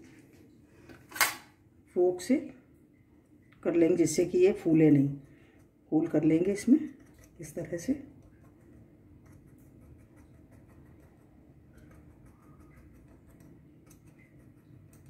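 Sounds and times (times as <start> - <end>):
fork tines ticking on dough: 6.8 - 15.0.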